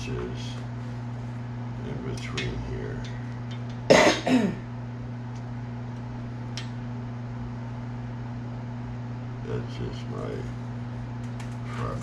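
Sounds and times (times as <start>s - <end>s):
steady low hum: 0.0s - 12.0s
man coughing: 3.9s - 4.7s.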